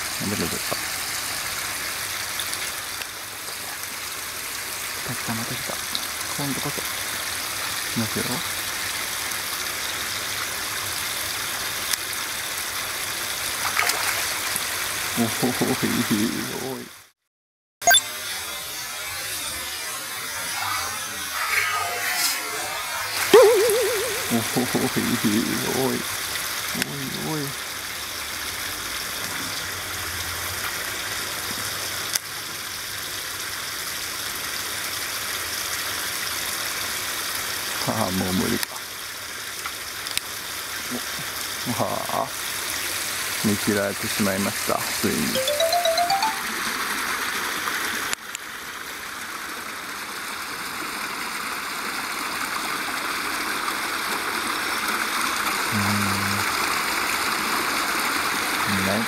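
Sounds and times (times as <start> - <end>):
water rushing along a channel: 10.8 - 15.2
stream water flowing: 12.7 - 15.1, 23.2 - 27.8.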